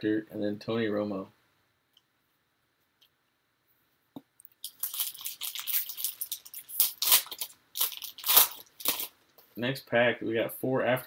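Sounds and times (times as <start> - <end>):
foil wrapper crinkling: 4.6 - 9.2.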